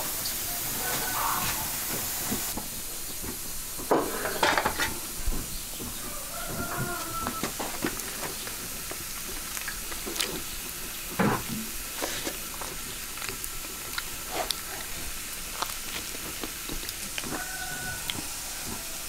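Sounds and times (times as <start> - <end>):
liquid hissing in a wok: 0.0 - 19.0
small crackles and clicks: 7.0 - 11.0, 12.0 - 18.8.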